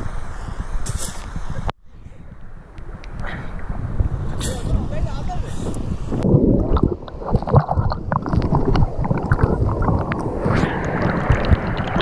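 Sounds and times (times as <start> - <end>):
stream water sloshing and gurgling: 6.2 - 12.0
water splashing and bubbling: 6.2 - 12.0.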